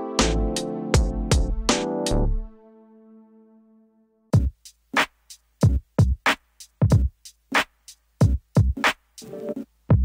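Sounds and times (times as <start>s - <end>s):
electronic music held chord: 0.0s - 4.5s
drum machine beat: 0.2s - 2.2s, 4.3s - 10.0s.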